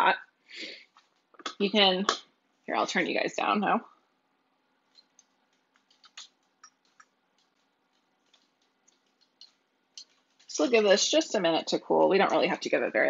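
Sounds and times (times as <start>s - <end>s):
faint light clicks and taps: 4.9s - 10.5s.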